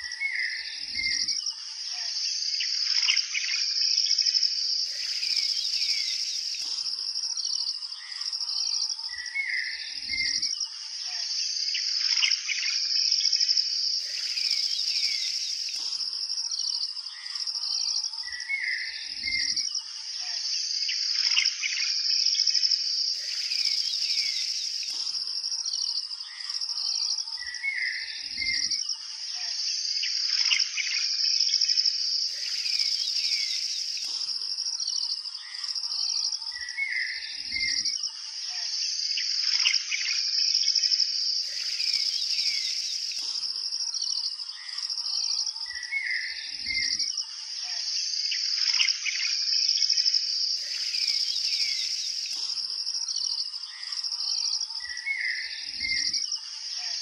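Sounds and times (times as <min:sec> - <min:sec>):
high-pitched insect chorus: 0:00.0 - 0:57.0
birds chirping: 0:04.8 - 0:07.0, 0:14.0 - 0:16.1, 0:23.1 - 0:28.7, 0:32.3 - 0:35.1, 0:41.4 - 0:43.5, 0:50.6 - 0:56.1.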